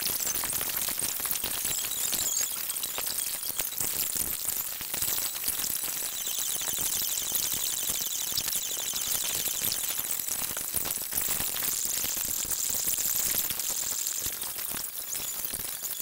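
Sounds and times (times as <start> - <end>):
clinks of glasses and tableware: 0.0 - 5.3, 14.2 - 16.0.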